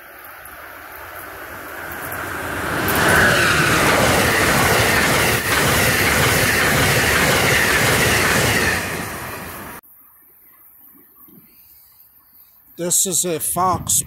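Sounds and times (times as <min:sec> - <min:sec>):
train passing at speed: 0:00.0 - 0:09.8.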